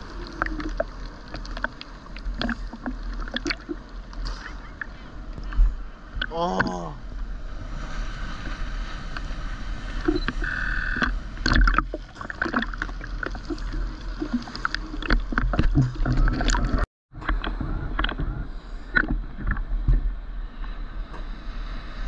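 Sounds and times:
water splashing against camera housing: 10.0 - 18.2.

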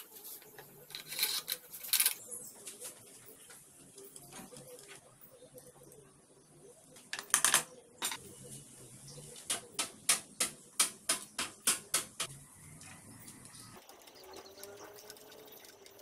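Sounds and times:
metal parts clicking: 0.9 - 2.2.

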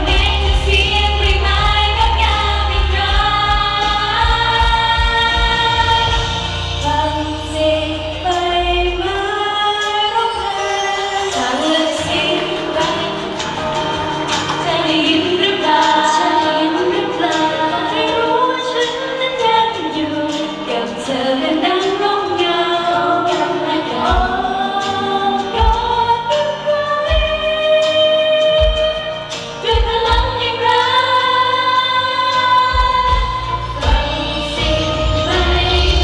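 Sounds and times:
low bass beats: 0.0 - 9.2
instrumental backing music: 0.0 - 36.0
women singing into microphones: 0.0 - 36.0.

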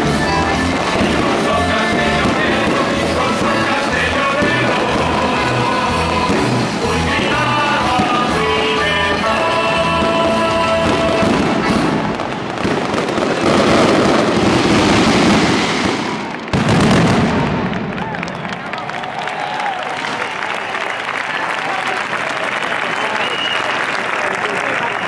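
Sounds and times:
fireworks crackling and hissing: 0.0 - 18.0
loud firework burst: 10.8 - 18.5.

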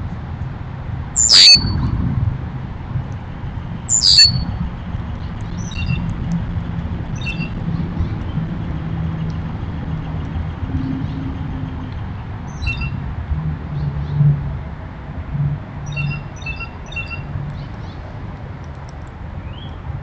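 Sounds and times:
steady low rumble: 0.0 - 20.0
songbird calls: 1.2 - 1.8, 3.9 - 4.6, 15.9 - 17.8.

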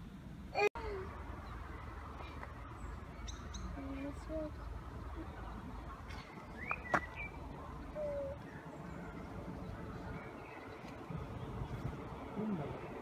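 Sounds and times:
faint bird chirps and whistles: 6.1 - 8.7.

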